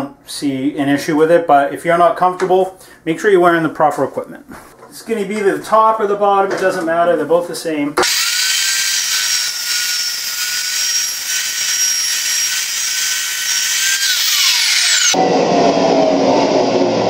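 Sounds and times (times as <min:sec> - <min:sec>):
saw cutting steel hiss: 0:08.0 - 0:15.2
chop saw whine: 0:08.0 - 0:17.0.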